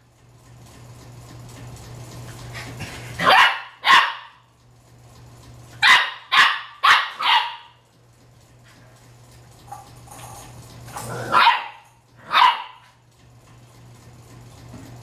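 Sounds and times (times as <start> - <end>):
puppy barking: 3.2 - 4.5, 5.8 - 7.8, 11.2 - 13.0.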